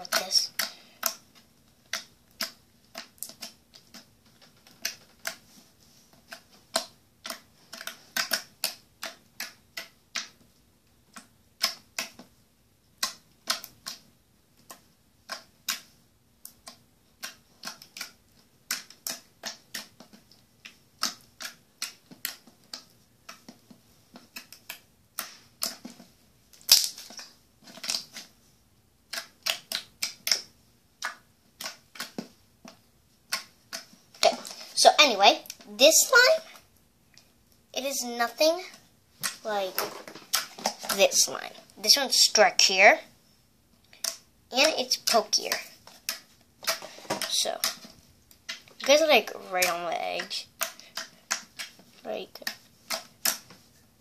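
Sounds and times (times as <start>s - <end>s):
crunchy slime crackling: 26.6s - 28.3s.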